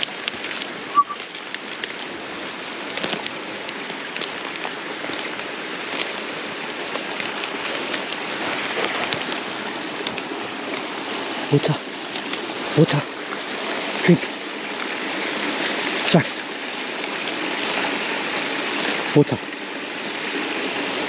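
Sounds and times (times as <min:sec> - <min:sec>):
footsteps crunching on leaf litter: 0:00.0 - 0:13.5, 0:16.6 - 0:18.9
flowing creek water: 0:00.0 - 0:21.0.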